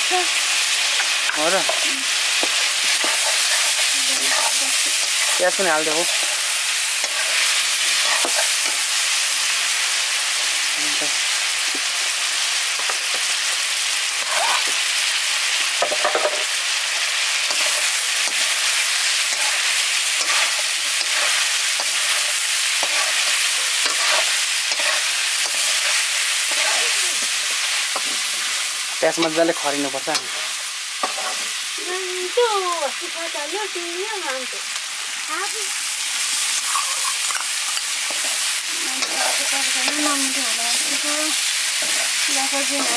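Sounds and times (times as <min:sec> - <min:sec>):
onions sizzling in hot oil: 0:00.0 - 0:42.9
spoon scraping pan: 0:01.0 - 0:08.9, 0:17.4 - 0:29.4, 0:30.1 - 0:31.6, 0:36.4 - 0:42.9.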